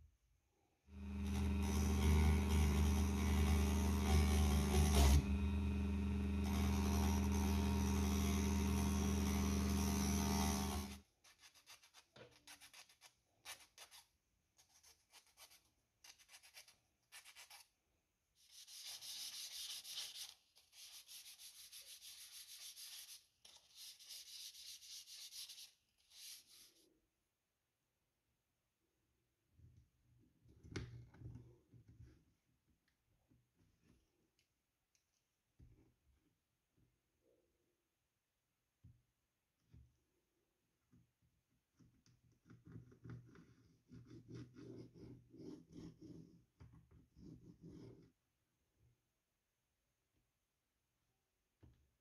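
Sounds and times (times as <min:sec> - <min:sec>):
rotary tool on wood: 0:01.0 - 0:11.0
sandpaper rubbing wood: 0:18.5 - 0:26.8.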